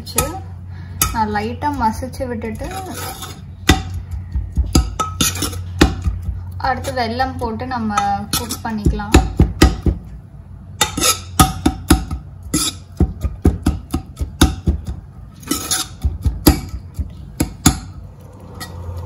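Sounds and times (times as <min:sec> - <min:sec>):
metal spoon scraping a pot: 0:02.4 - 0:07.1, 0:08.0 - 0:08.8, 0:10.8 - 0:11.4, 0:12.4 - 0:13.0, 0:15.3 - 0:17.8.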